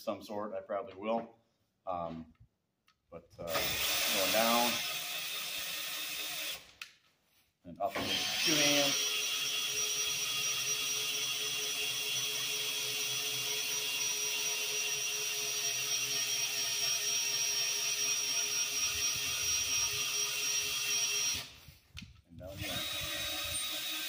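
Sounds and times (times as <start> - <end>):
cordless drill running: 3.5 - 6.7, 7.9 - 21.7, 22.5 - 24.0.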